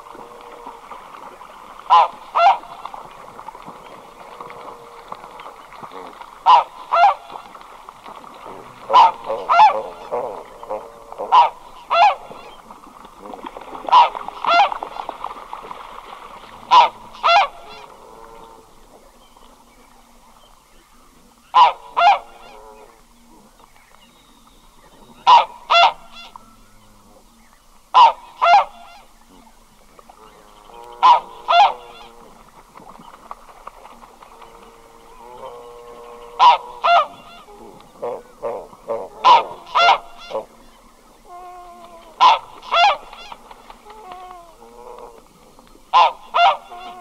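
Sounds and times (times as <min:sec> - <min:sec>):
goose double honk calls: 0:28.0 - 0:29.1, 0:30.9 - 0:32.1, 0:35.4 - 0:40.5, 0:42.2 - 0:43.4, 0:45.9 - 0:47.0.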